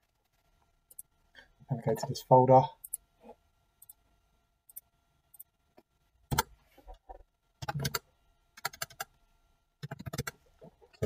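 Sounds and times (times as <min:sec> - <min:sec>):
keyboard typing: 0:07.6 - 0:08.0, 0:08.6 - 0:09.1, 0:09.8 - 0:10.4.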